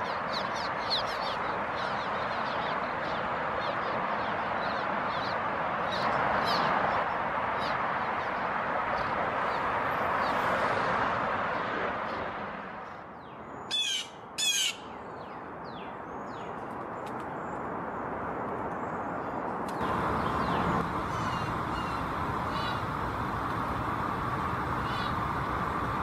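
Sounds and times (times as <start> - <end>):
blue jay harsh calls: 13.6 - 15.0, 19.8 - 23.0, 24.6 - 25.4
faint bird calls: 19.8 - 23.3, 24.3 - 25.8.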